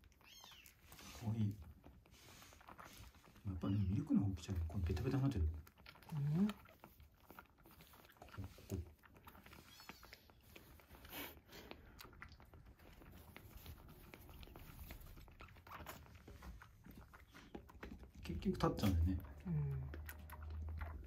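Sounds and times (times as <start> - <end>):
kitten sucking from bottle: 0.0 - 21.0.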